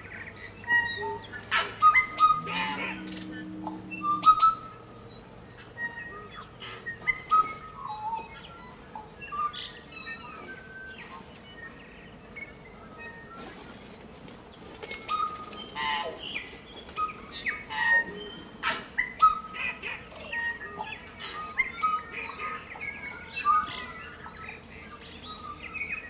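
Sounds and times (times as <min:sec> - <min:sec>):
bird singing chirps and clicks: 0:13.4 - 0:19.4.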